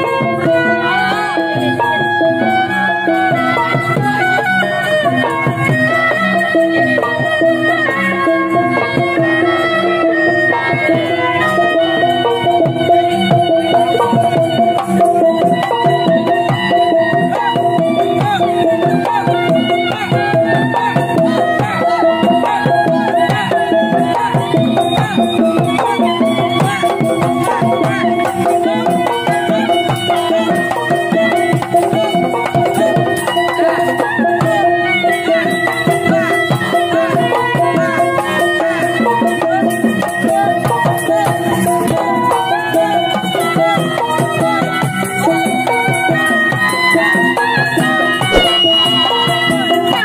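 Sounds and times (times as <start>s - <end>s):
fast hand drum strokes: 0.0s - 42.1s, 42.7s - 50.0s
clashing hand cymbals: 48.1s - 50.0s
loud street dance music: 48.3s - 50.0s.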